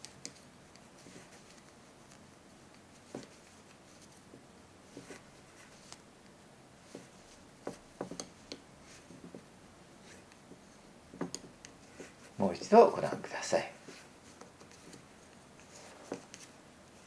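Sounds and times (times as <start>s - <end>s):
wooden knitting needles clicking: 0.0s - 3.4s, 7.6s - 9.4s, 11.1s - 11.8s.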